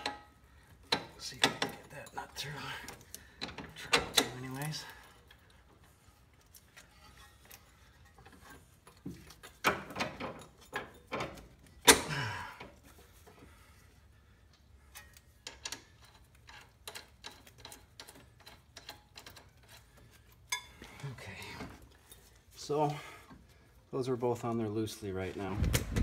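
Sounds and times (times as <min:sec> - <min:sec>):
metal clinks and knocks: 0:00.0 - 0:13.0, 0:14.9 - 0:22.5
small metallic clicks: 0:14.5 - 0:21.0.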